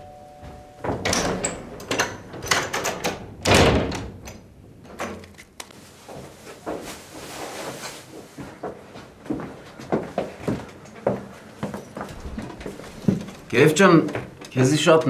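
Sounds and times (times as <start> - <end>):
door thud: 0.8 - 4.2
door latch clicks and knocks: 0.8 - 5.2.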